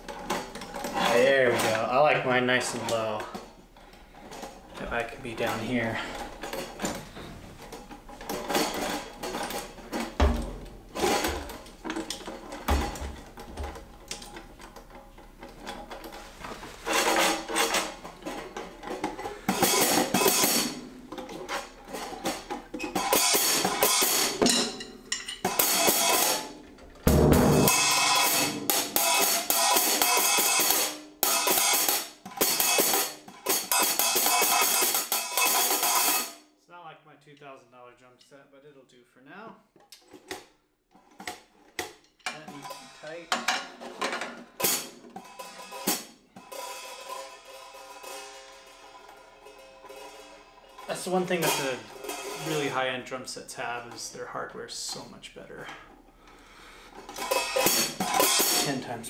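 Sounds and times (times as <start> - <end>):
low drum thumps: 27.0 - 28.0.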